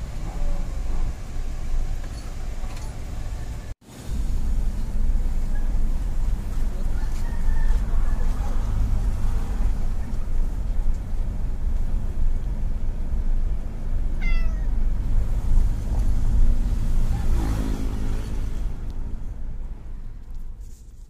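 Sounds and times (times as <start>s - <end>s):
cat meowing: 14.2s - 14.8s.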